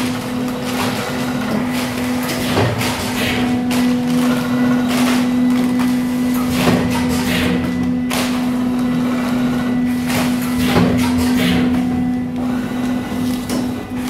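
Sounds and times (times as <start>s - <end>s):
machine hiss and clatter: 0.0s - 5.3s, 6.2s - 11.8s
packing machine motor hum: 0.0s - 14.0s.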